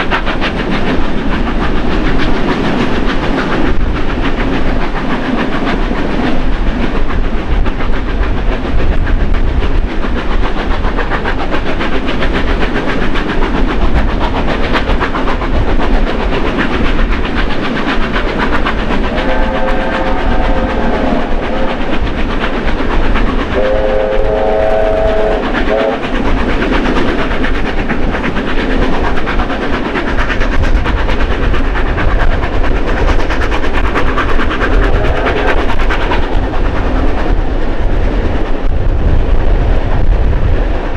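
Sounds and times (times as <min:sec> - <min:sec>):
train carriage rumbling: 0:00.0 - 0:40.9
steam whistle blasts: 0:19.1 - 0:21.9, 0:23.6 - 0:26.0.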